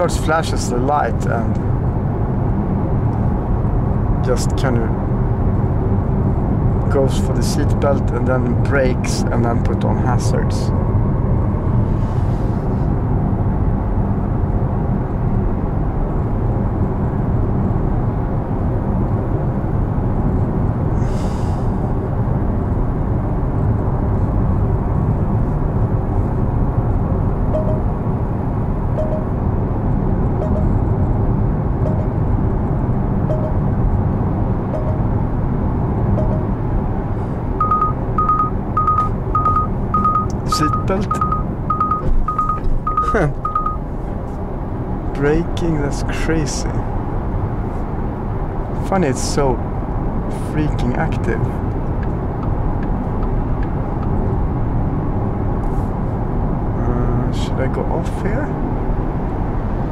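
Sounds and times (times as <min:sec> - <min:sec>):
road and tyre noise: 0:00.0 - 0:59.9
high warning beeps: 0:27.6 - 0:27.9, 0:29.0 - 0:29.3, 0:30.4 - 0:30.8, 0:31.9 - 0:32.1, 0:33.3 - 0:33.6, 0:34.8 - 0:35.1, 0:36.2 - 0:36.5, 0:37.6 - 0:43.8.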